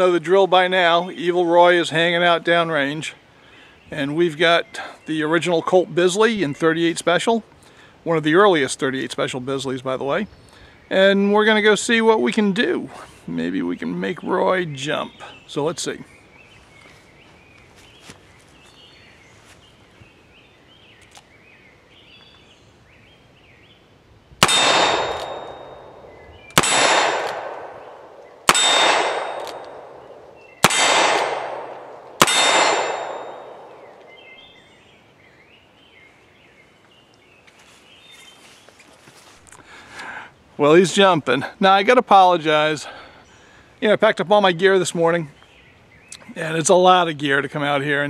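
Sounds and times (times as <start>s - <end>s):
steel target ringing: 24.4s - 27.9s, 28.5s - 34.0s
revolver shots: 24.4s - 34.1s.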